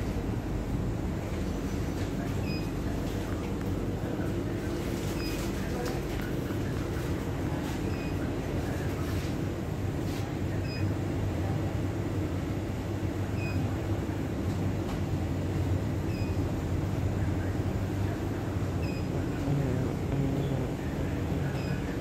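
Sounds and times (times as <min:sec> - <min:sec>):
low machine hum of coolers: 0:00.0 - 0:22.0
faint high beep: 0:16.1 - 0:16.4.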